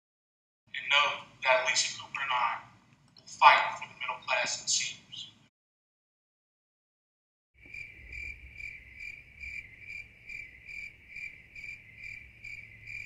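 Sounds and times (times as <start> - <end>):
cricket chirping: 7.6 - 13.0.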